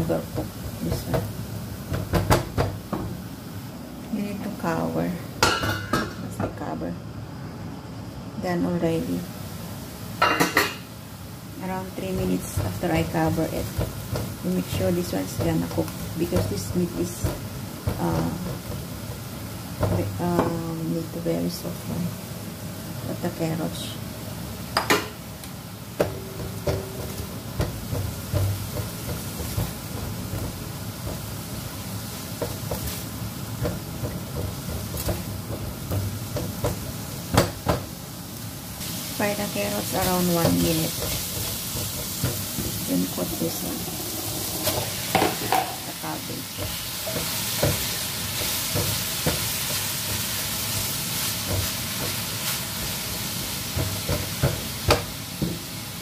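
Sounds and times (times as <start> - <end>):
meat and vegetables sizzling in a wok: 0.0 - 6.4, 7.2 - 56.0
spatula scraping a pan: 40.9 - 45.8.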